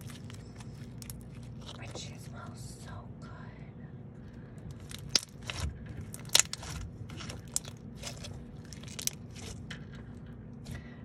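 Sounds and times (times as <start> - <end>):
slime crackling and popping: 0.0 - 1.8, 4.7 - 9.7.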